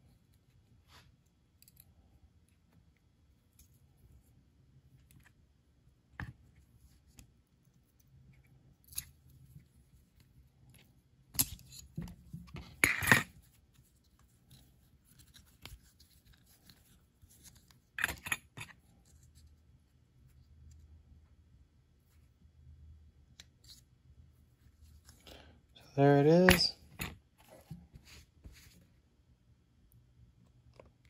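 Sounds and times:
metal parts clinking on workbench: 0:12.8 - 0:13.3, 0:26.4 - 0:27.1.

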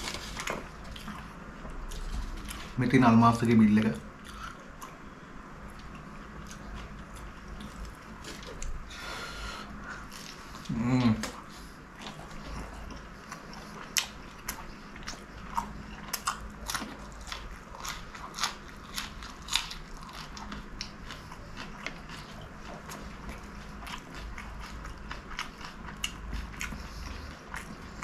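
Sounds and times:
crisp pastry crunching: 0:12.1 - 0:22.6.

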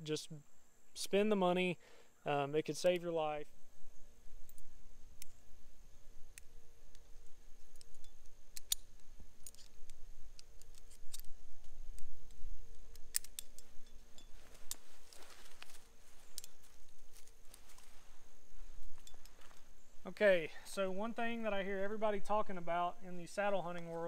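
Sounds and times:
metal carabiners clicking: 0:07.6 - 0:17.8, 0:18.9 - 0:19.6.

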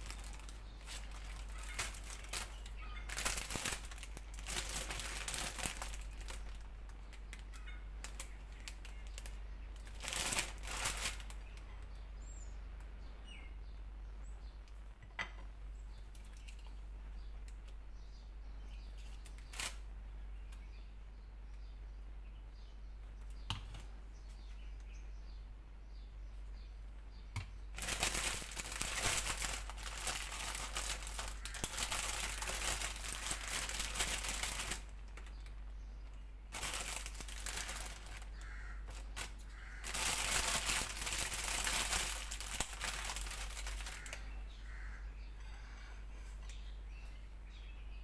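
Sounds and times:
plastic bags crinkling: 0:00.0 - 0:11.6, 0:19.2 - 0:19.8, 0:27.8 - 0:35.5, 0:36.5 - 0:44.3.

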